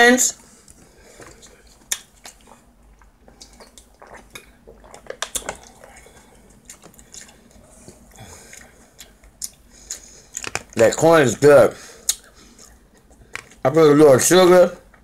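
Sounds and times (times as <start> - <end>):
plastic bottle crinkling and clicking: 10.4 - 10.8.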